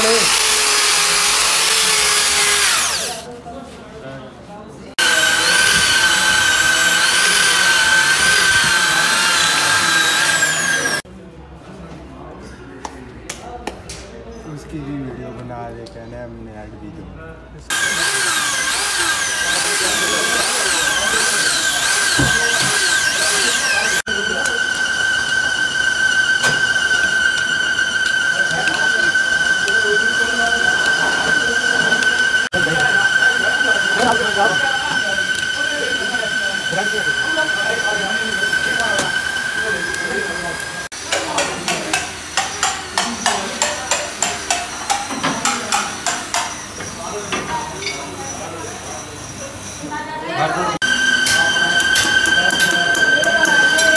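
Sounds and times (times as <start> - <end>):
electric drill whining and squealing: 0.0 - 3.2, 5.0 - 11.0, 17.7 - 40.9, 50.8 - 53.9.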